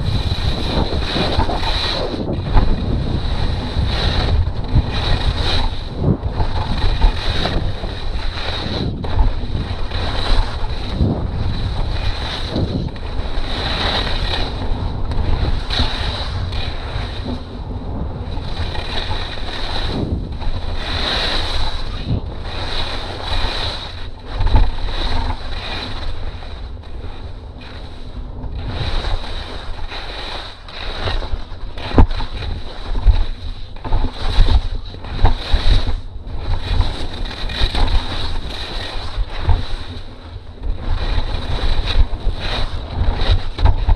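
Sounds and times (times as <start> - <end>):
skis scraping over hard snow: 0.0 - 43.9
wind buffeting microphone: 0.0 - 43.9.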